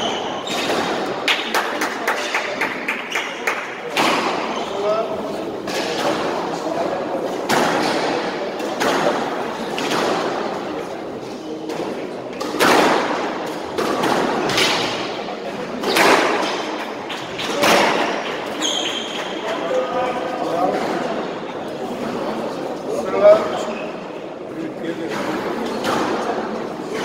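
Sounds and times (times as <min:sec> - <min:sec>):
squash ball cracks echoing: 0:00.0 - 0:04.5, 0:05.6 - 0:10.9, 0:11.6 - 0:18.6, 0:25.1 - 0:27.0.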